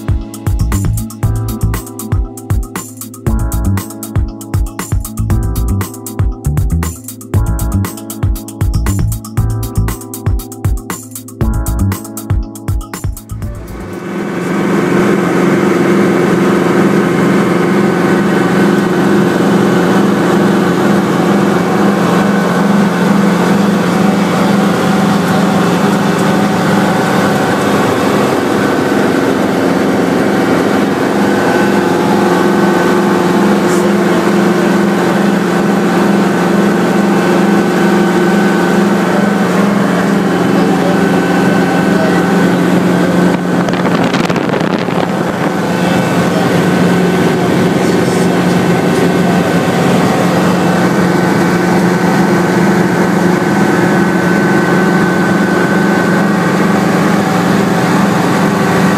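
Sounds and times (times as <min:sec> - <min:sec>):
helicopter engine and rotor drone: 0:13.4 - 0:58.9.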